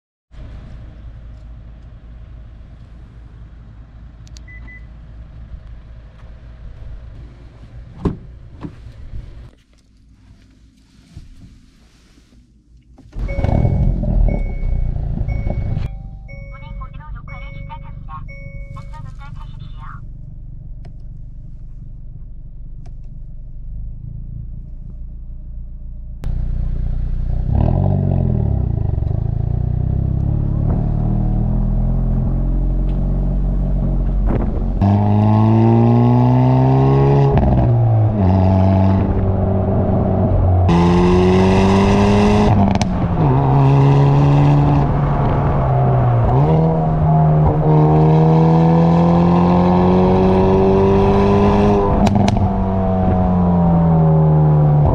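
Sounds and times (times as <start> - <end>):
car exhaust rumble: 0.3 - 54.9
engine accelerating through gears: 13.1 - 16.5, 20.4 - 54.9.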